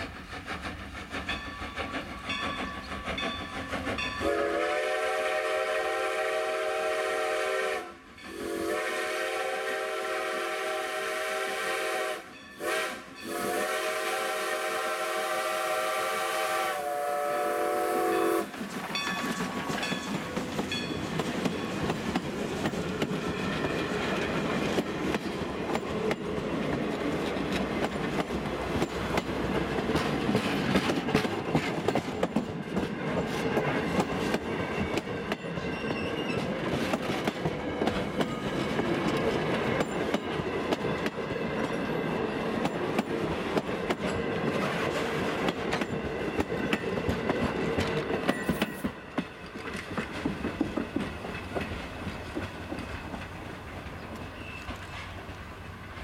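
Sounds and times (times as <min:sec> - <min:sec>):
train wheels clicking on rail joints: 0:00.0 - 0:07.6, 0:15.7 - 0:56.0
steam locomotive whistle: 0:04.0 - 0:18.6.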